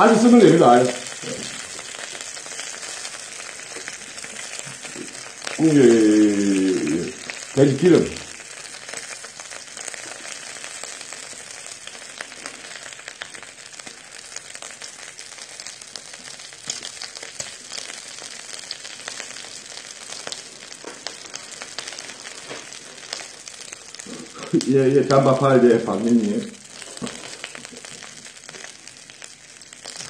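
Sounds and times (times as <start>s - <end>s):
meat sizzling in fat: 0.0s - 30.0s
fat spitting pops: 1.2s - 1.7s, 24.0s - 24.7s, 26.8s - 27.8s.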